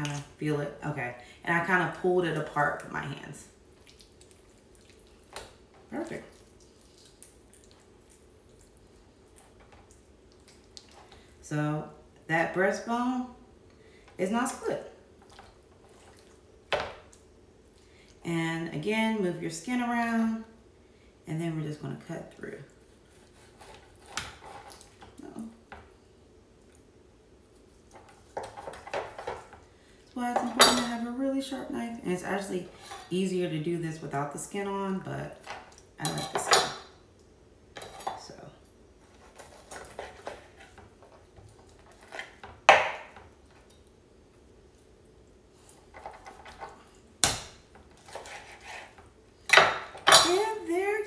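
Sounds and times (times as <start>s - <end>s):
knife squishing through meat: 48.0s - 49.1s.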